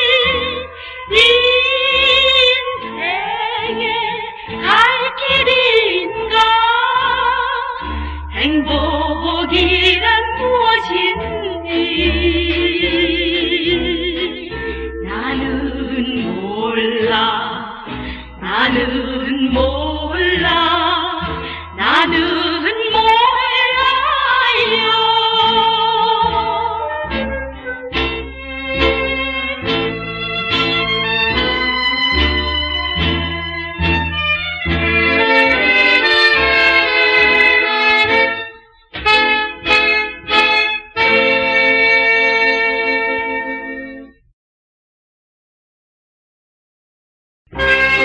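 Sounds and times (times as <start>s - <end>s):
women singing with vibrato: 0.0s - 27.0s
band accompaniment with bass: 26.2s - 44.0s, 47.5s - 48.0s.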